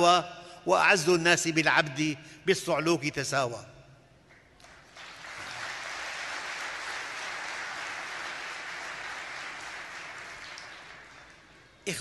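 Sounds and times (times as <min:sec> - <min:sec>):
audience applauding: 0:04.6 - 0:11.7.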